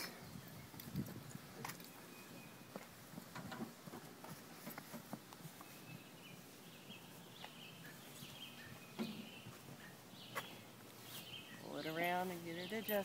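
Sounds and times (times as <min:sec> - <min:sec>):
faint high chirping: 0:05.6 - 0:12.1.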